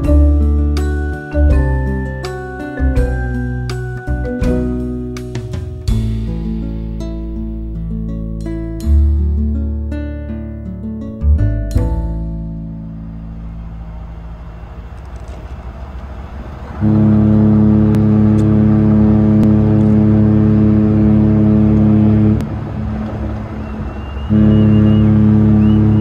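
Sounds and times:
low rumble: 11.4 - 26.0
ship's horn blast: 16.6 - 26.0.

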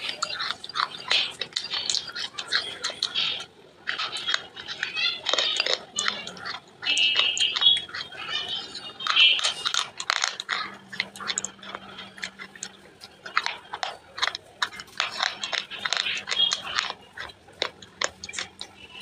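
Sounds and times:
person chewing wet paste: 0.0 - 19.0.

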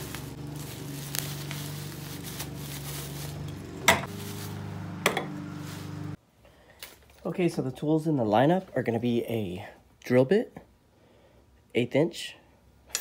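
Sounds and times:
bubble wrap rustling: 0.0 - 6.2.

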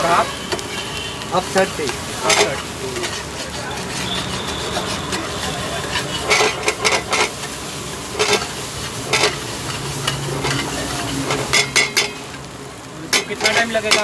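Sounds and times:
metal spatula scraping frying pan: 0.0 - 1.1, 2.2 - 12.4, 13.1 - 14.0
steady sizzle: 0.0 - 14.0.

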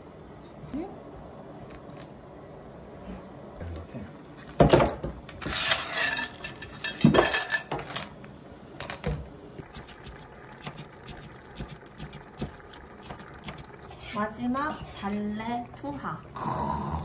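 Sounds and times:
metal bowl clanking: 5.6 - 7.7
clams rattling in metal bowl: 5.7 - 7.7.

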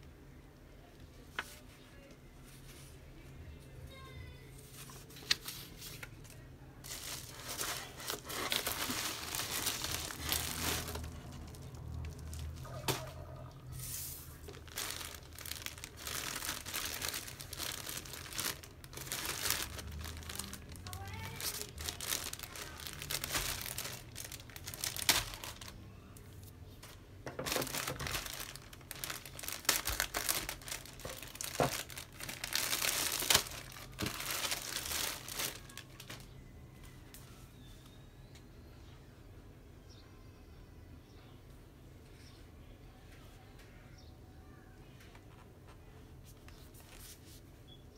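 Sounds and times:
plastic packaging crinkling: 4.8 - 25.8, 26.8 - 36.4.

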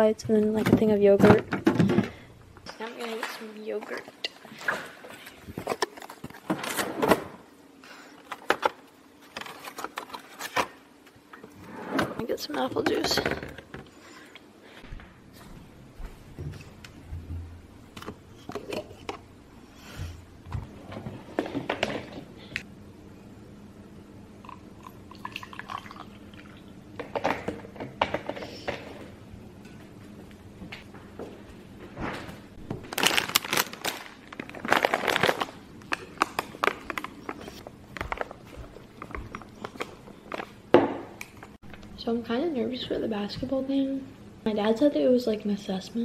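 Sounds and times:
plastic rustling: 32.6 - 40.6.

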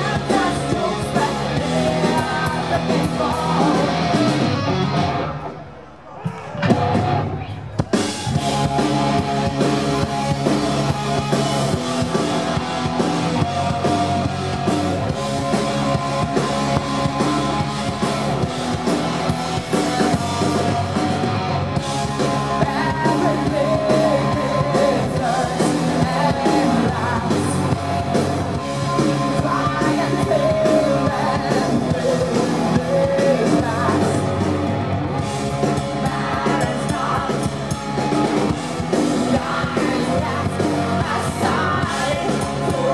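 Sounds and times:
woman singing: 0.0 - 4.0, 22.5 - 27.8, 29.0 - 34.2, 36.0 - 37.4, 39.3 - 42.9
bass guitar: 0.0 - 5.8, 6.4 - 42.9
distorted electric guitar: 0.0 - 5.8, 6.4 - 42.9
drum kit: 0.0 - 42.9.

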